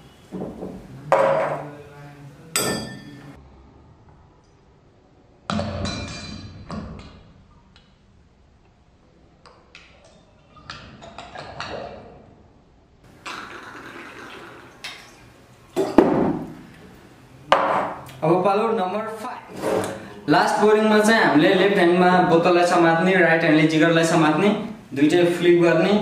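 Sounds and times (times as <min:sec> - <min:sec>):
liquid pouring into metal jigger: 0:13.2 - 0:15.2.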